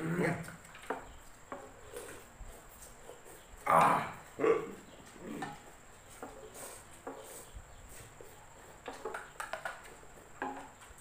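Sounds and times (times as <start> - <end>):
crickets chirring: 0.0 - 11.0
soft clicks and knocks: 8.8 - 11.0.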